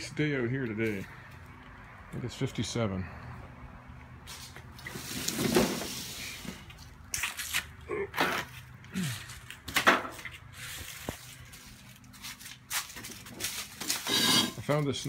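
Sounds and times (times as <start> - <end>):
rustling and scuffing: 4.2 - 7.7, 8.4 - 15.0.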